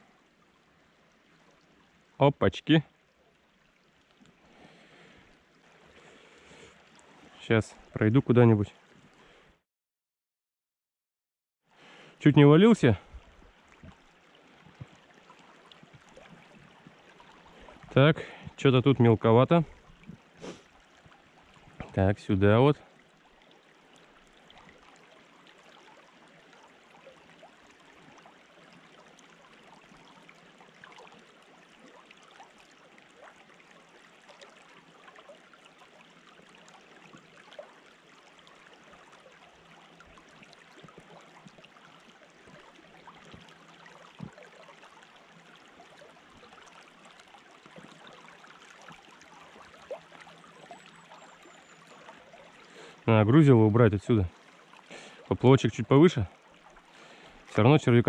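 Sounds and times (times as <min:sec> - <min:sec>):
river water rushing: 0:43.5 - 0:55.4.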